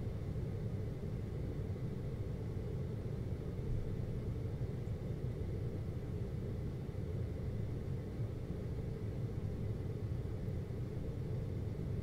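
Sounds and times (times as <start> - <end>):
air conditioner humming: 0.0 - 1.9.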